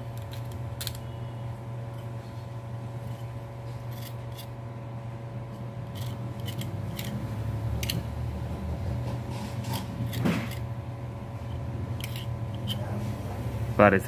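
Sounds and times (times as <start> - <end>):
steady low hum: 0.0 - 14.0
blade scraping fan windings: 5.5 - 10.8, 11.4 - 13.4.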